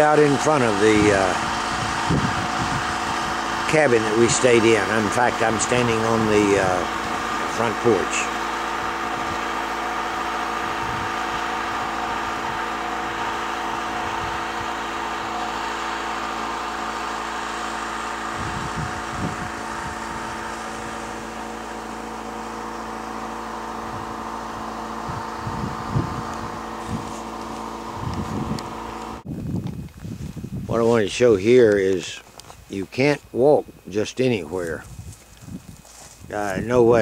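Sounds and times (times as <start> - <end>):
low rumble on microphone: 0.0 - 9.6, 18.3 - 21.4, 23.1 - 31.4
generator engine humming: 0.0 - 37.0.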